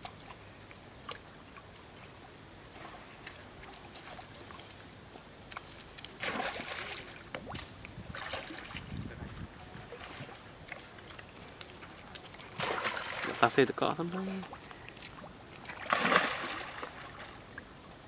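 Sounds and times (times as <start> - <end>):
water trickling and dripping: 0.0 - 18.0
monkeys splashing in water: 6.1 - 8.8, 11.3 - 13.5, 15.6 - 17.4
big water splash: 6.2 - 8.8, 12.5 - 13.6, 15.6 - 17.3.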